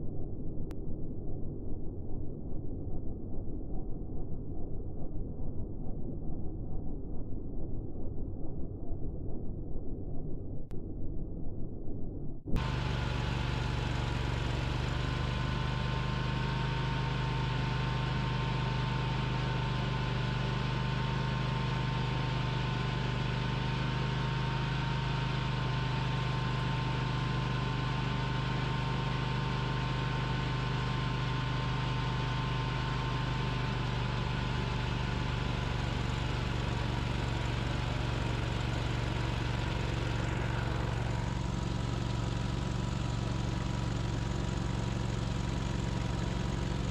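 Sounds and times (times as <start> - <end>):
snowblower engine running: 12.6 - 46.9.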